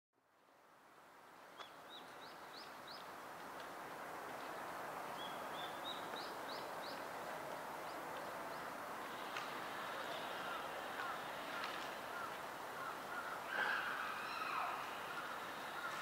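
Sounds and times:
background hiss: 0.2s - 16.0s
songbird chirping: 4.4s - 7.2s.

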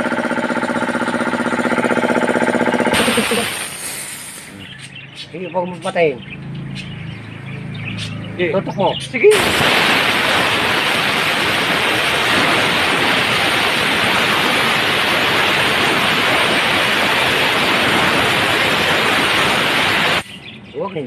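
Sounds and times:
compressed air hissing: 2.9s - 4.8s, 9.3s - 20.4s.

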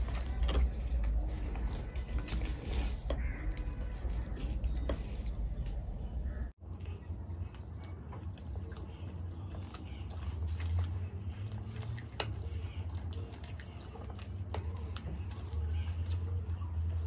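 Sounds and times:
chewing with mouth clicks: 6.6s - 17.0s.

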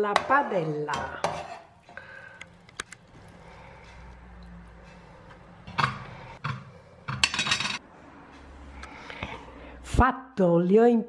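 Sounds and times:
metal clinking on plate: 7.1s - 7.8s.

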